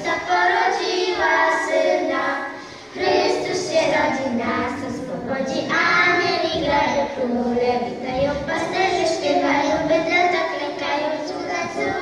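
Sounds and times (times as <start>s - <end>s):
girls singing a carol: 0.0s - 12.0s.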